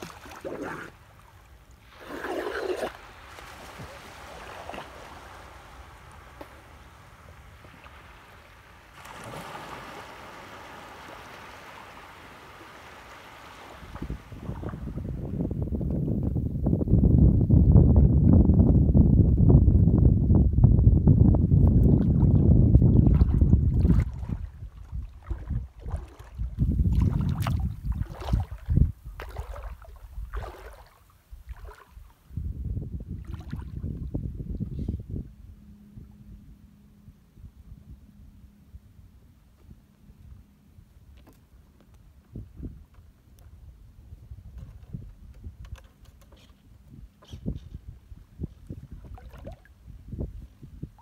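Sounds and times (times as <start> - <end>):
small splashes of shallow water: 0.0 - 15.1, 21.8 - 32.2, 33.2 - 33.8, 48.9 - 49.8
small waves washing gently: 0.0 - 15.5, 22.9 - 32.3
wind buffeting microphone: 13.4 - 38.1, 42.2 - 51.0.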